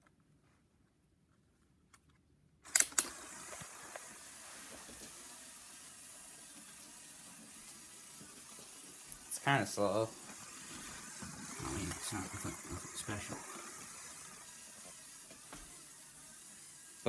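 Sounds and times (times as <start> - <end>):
sharp clicks: 2.7 - 3.2
toy motor whirring: 2.7 - 17.0.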